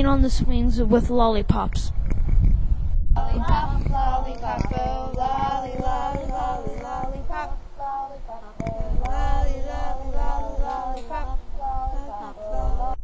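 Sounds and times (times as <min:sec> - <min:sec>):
low rumble: 0:01.8 - 0:13.0
high voice singing: 0:03.2 - 0:13.0.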